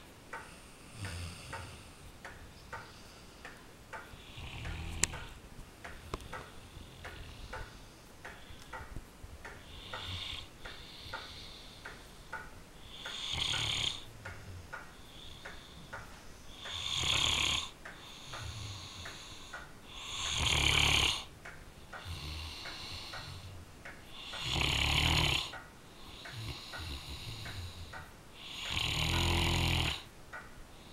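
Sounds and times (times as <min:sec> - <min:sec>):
light steady ticking: 0:00.0 - 0:30.9
dog snoring: 0:04.2 - 0:05.4, 0:09.6 - 0:11.5, 0:12.8 - 0:14.1, 0:16.5 - 0:21.3, 0:22.0 - 0:23.5, 0:24.1 - 0:30.1.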